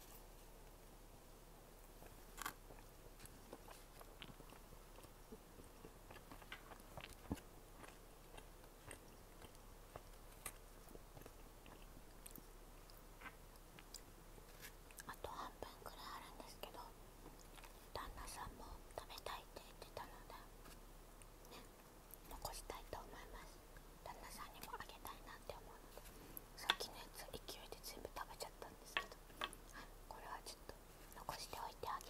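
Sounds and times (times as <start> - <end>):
doughnut chewing: 1.8 - 15.5.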